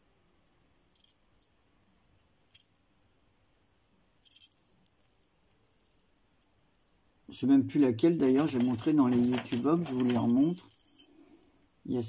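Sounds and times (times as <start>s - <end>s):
small jingle bell tinkling: 0.8s - 1.5s, 4.2s - 7.0s, 8.2s - 11.4s.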